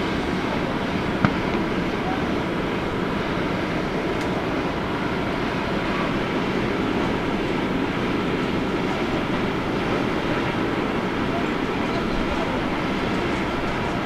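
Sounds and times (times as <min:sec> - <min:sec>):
jet engines rumbling: 0:00.0 - 0:14.0.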